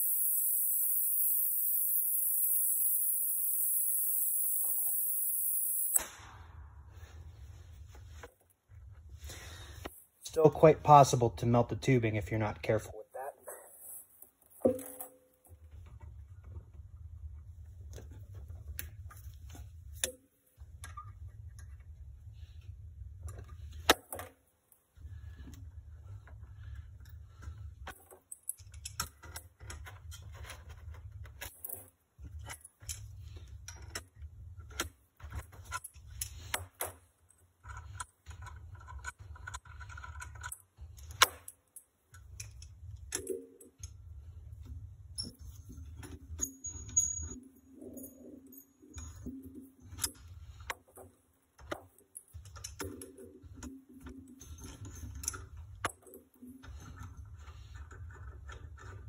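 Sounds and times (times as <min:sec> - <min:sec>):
metal tools clinking and rattling: 0:45.2 - 0:50.7, 0:52.0 - 0:59.0.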